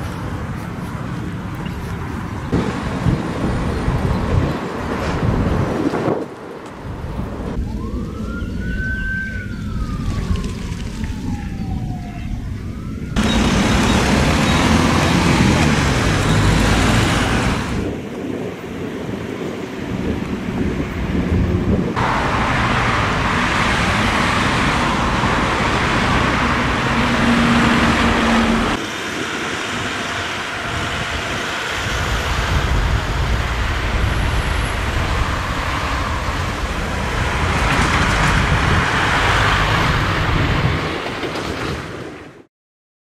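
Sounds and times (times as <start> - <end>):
cars driving past: 13.2 - 18.0, 20.7 - 42.0.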